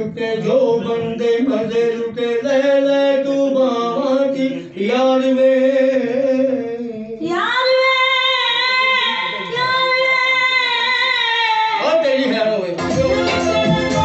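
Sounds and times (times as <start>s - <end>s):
woman singing: 7.2s - 11.8s.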